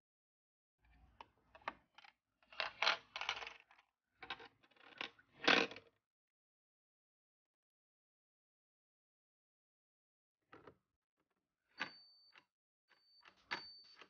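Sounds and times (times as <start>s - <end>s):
plastic toy pieces clattering: 2.0s - 5.8s.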